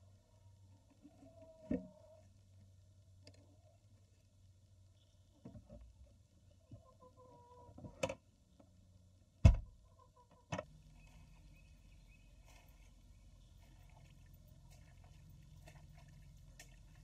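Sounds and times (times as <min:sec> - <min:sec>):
soft hen clucks: 0:06.5 - 0:08.0, 0:09.8 - 0:10.6.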